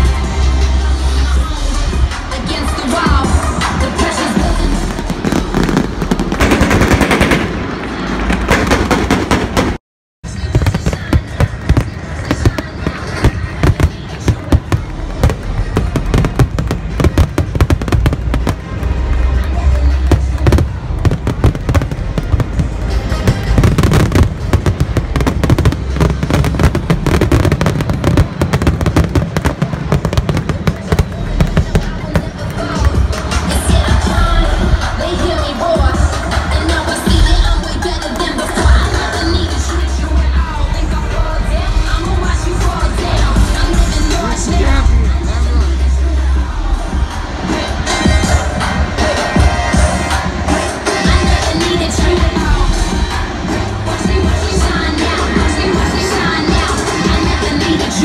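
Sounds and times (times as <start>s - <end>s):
loud music: 0.0s - 58.0s
fireworks bangs and crackles: 2.9s - 42.4s
pyrotechnics crackling bangs: 5.0s - 9.8s.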